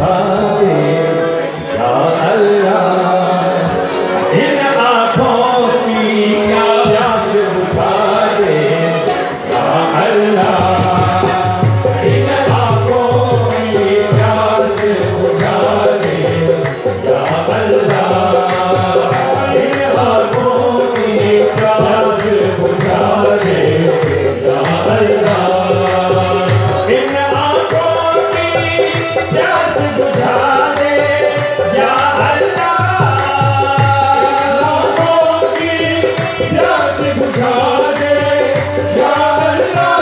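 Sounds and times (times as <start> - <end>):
harmonium melody: 0.0 - 40.0
hand drum rhythm: 5.2 - 40.0
hand clapping: 12.2 - 40.0.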